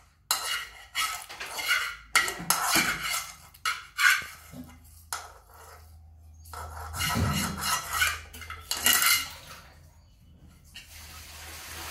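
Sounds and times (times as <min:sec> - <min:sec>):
steel spoon scraping pan: 0:00.0 - 0:09.5.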